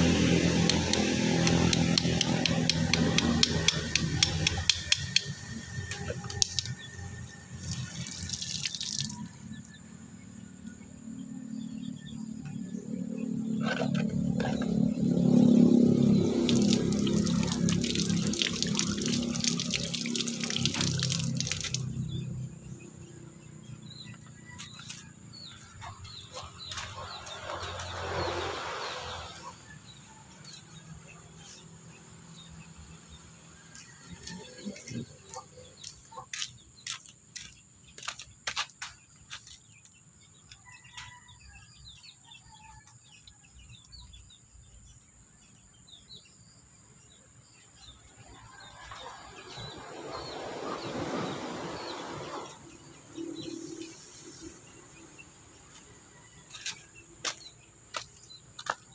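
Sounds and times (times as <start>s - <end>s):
birds chirping: 0.0s - 58.9s
sharp clicks and taps: 0.6s - 6.7s
water splashing on concrete: 7.6s - 9.3s, 16.1s - 22.2s.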